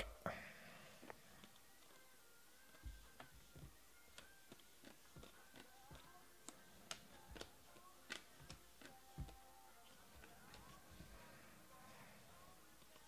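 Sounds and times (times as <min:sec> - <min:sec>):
faint background music: 0:00.0 - 0:13.0
cards being flipped clicking: 0:04.1 - 0:09.4.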